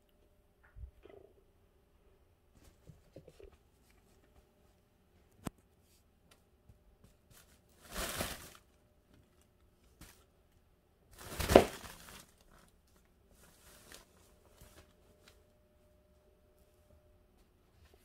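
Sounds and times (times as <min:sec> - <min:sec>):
crinkly fabric rustling: 0:07.1 - 0:10.4, 0:11.1 - 0:15.5.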